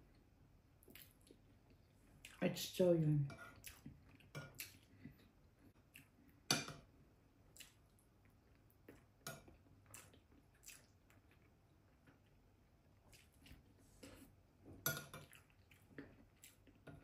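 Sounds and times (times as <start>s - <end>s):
chewing and mouth smacks: 0.8s - 2.4s, 3.6s - 6.4s, 7.5s - 14.2s, 15.2s - 17.0s.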